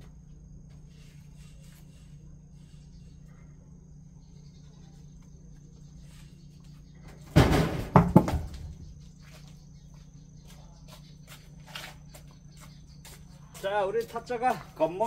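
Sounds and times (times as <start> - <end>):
log thudding on pavement: 7.3 - 8.8
log knocking as it bounces: 7.4 - 8.8.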